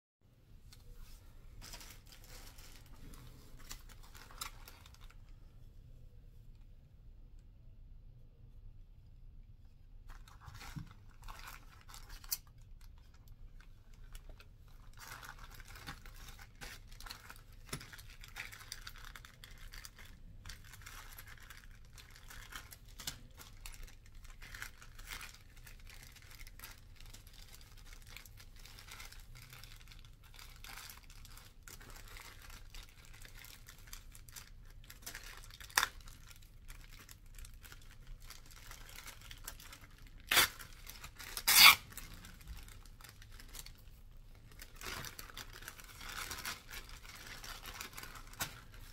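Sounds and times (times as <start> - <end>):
plastic bags crinkling: 1.6 - 5.2, 10.2 - 48.9.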